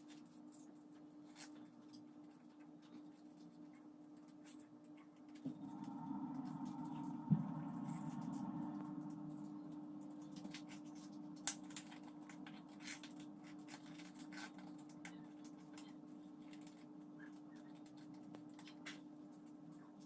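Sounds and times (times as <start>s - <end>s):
low steady hum: 5.3s - 16.8s
paper rustling and crinkling: 11.4s - 15.8s.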